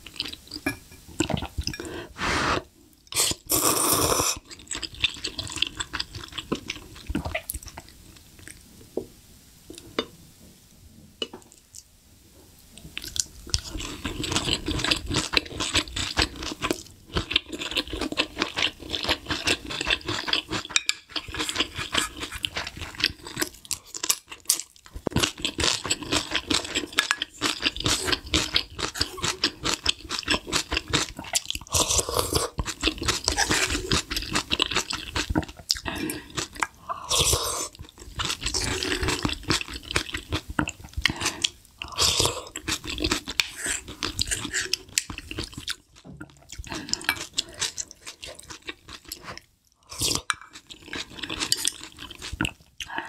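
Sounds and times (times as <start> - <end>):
slurping noodles: 1.8 - 4.4
wet chewing and crunching: 4.4 - 8.6, 12.9 - 52.9.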